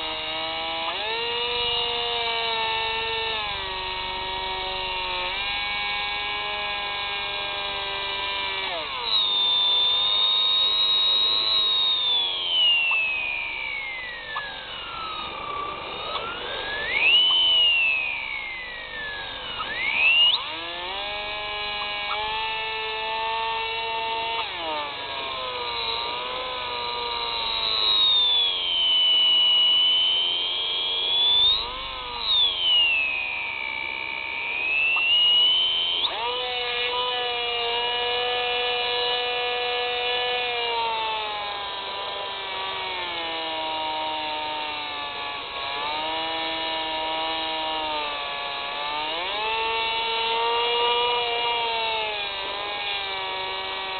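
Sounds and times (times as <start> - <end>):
model aircraft motor whining: 0.0 - 53.9
higher swooping whine: 8.2 - 22.4, 23.1 - 39.8.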